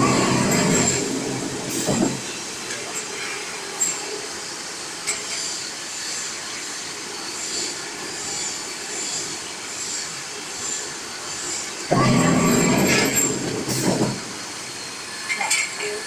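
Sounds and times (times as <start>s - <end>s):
machine running: 0.0s - 2.6s, 10.6s - 15.0s.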